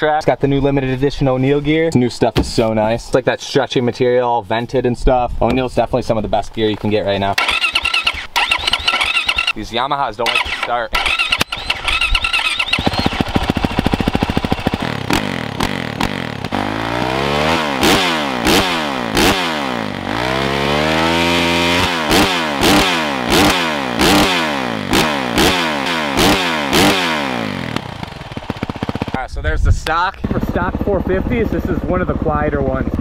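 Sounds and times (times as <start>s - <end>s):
motorcycle engine idling and revving: 7.3s - 9.6s, 10.2s - 33.0s.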